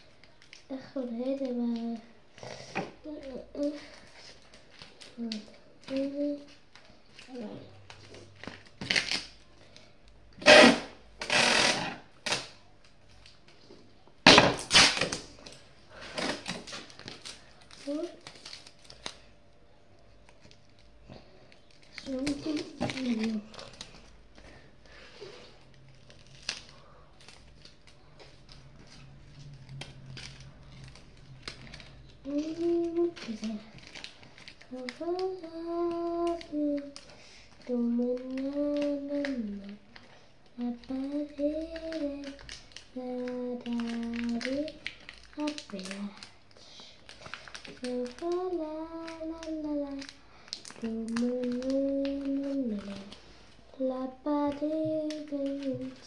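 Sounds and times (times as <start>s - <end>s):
paper rustling and clicks: 21.5s - 24.1s, 26.0s - 46.4s, 47.1s - 53.3s, 54.4s - 56.0s.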